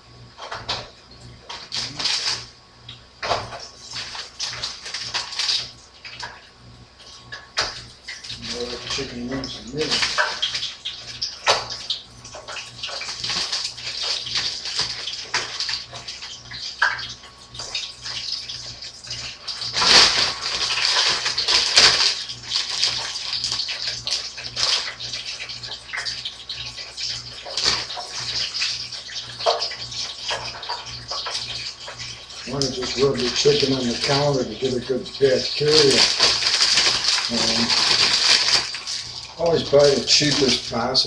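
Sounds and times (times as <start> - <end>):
plastic bags crinkling: 19.7 - 23.2, 32.4 - 40.6
faint low hum: 32.2 - 41.0.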